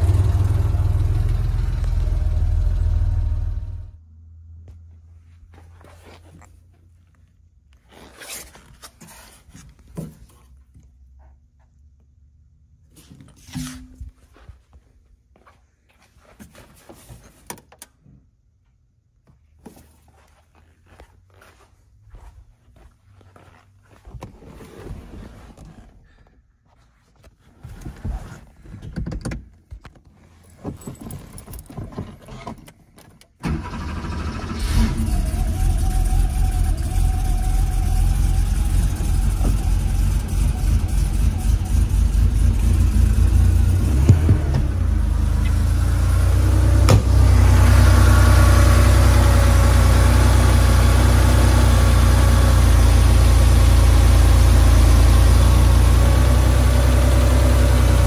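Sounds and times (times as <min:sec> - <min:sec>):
car engine starting and idling: 0:00.0 - 0:04.7, 0:31.3 - 0:58.0.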